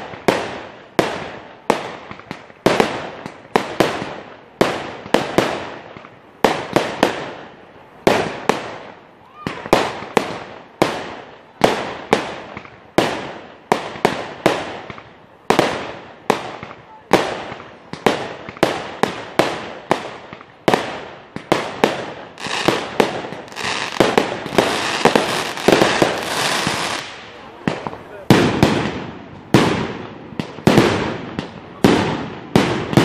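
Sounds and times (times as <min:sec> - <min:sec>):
firework crackling volley: 0:00.0 - 0:33.0
firework shells bursting: 0:21.4 - 0:33.0.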